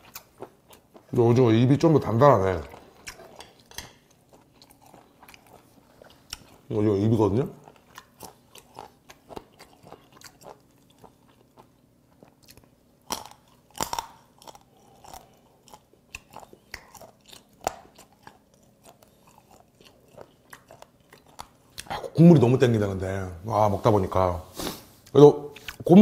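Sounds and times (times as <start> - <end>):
chewing with crunching clicks: 2.4 - 6.7, 7.5 - 22.1.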